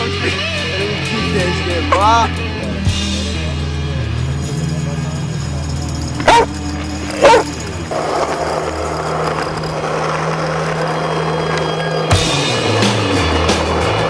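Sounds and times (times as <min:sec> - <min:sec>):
skateboard wheels rolling on asphalt: 0:04.7 - 0:14.0
dog barking: 0:06.2 - 0:07.6.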